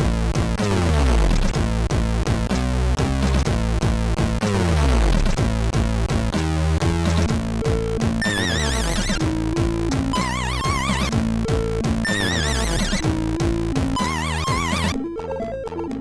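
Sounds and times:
chiptune music: 0.0s - 16.0s
wobbling high tone: 8.2s - 9.2s, 10.2s - 11.1s, 12.0s - 13.0s, 14.0s - 15.2s.

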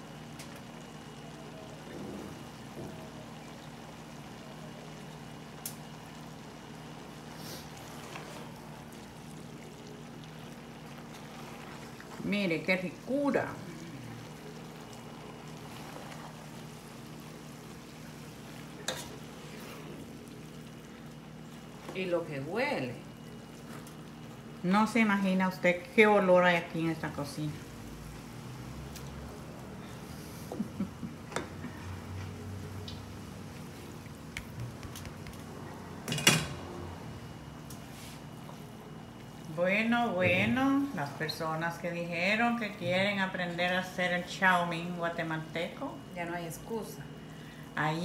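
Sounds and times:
noodles sizzling in a pan: 0.0s - 30.3s
wooden spatulas stirring: 7.4s - 9.1s, 10.9s - 12.8s, 14.9s - 16.9s, 17.8s - 20.1s.

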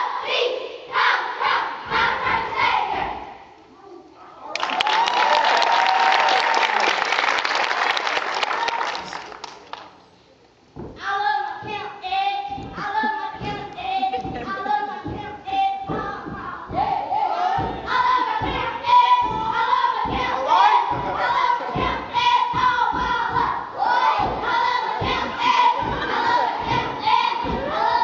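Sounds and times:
children chanting together: 0.0s - 3.4s, 15.8s - 28.0s
rhythmic stomps and claps: 4.6s - 10.0s, 11.6s - 28.0s.

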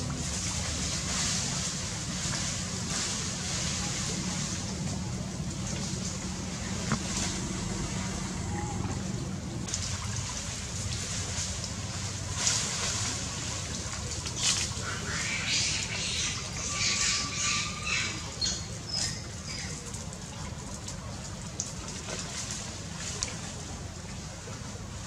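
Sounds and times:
steady low rumble: 0.0s - 25.0s
monkey splashing in water: 9.5s - 23.5s.

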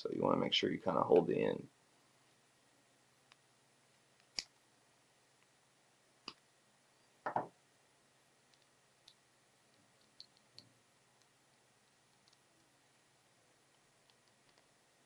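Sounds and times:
faint ticks: 8.5s - 11.3s.

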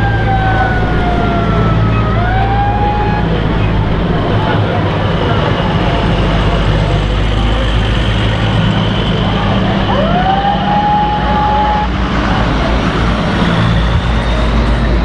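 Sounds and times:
road noise: 0.0s - 15.0s
trucks driving past: 0.0s - 15.0s.

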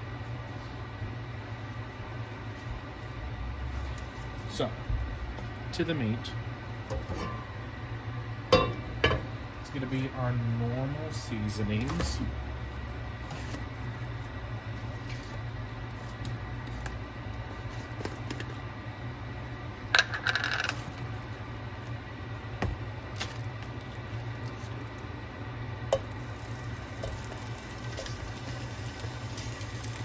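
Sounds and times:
vent fan humming: 0.0s - 30.0s
meat hissing in hot oil: 26.2s - 30.0s.

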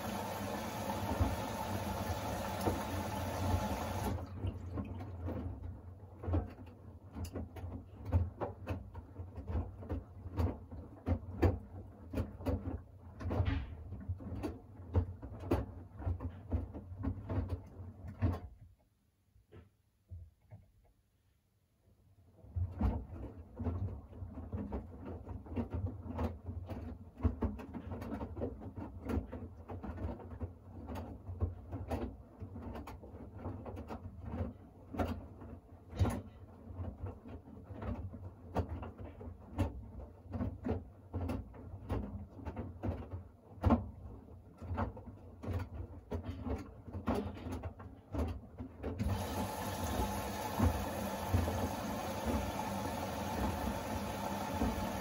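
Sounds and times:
washing machine drum turning: 0.0s - 5.0s, 49.0s - 55.0s.

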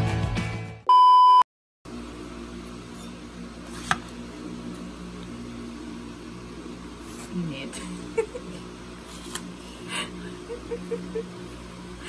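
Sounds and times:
music: 0.0s - 0.8s
loud steady beep: 0.9s - 1.4s.

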